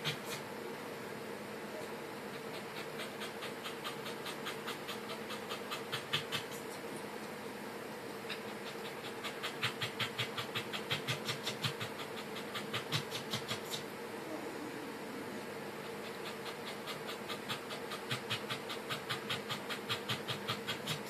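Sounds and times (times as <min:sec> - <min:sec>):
dog panting: 0:02.2 - 0:06.8, 0:08.3 - 0:13.9, 0:15.7 - 0:21.0.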